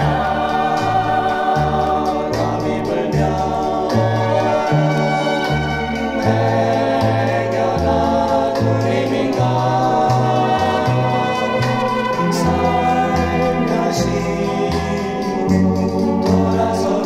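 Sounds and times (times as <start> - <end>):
bass line: 0.0 - 17.0
electric organ chords: 0.0 - 17.0.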